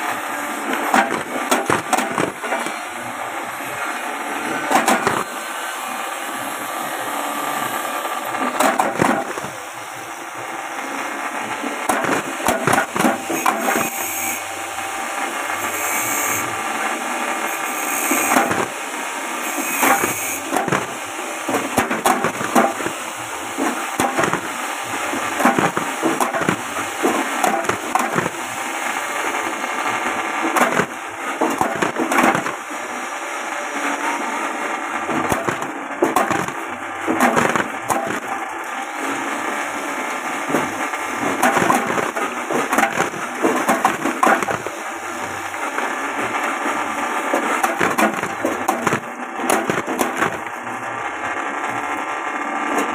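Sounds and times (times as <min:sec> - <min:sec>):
machine running: 0:00.0 - 0:52.9
blades chopping tubers: 0:00.6 - 0:02.8, 0:04.6 - 0:05.4, 0:08.3 - 0:09.6, 0:11.5 - 0:14.1, 0:19.6 - 0:28.5, 0:30.4 - 0:32.7, 0:35.1 - 0:38.8, 0:40.3 - 0:50.7.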